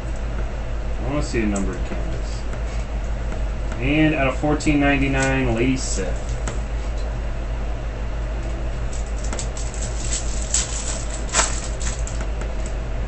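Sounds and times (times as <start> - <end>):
steady low hum: 0.0 - 13.0
foil wrapper crinkling and tearing: 9.0 - 12.2.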